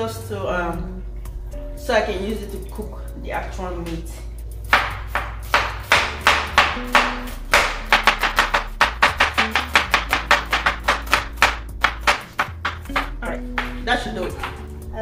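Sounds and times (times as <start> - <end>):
knife chopping onions: 4.7 - 14.7.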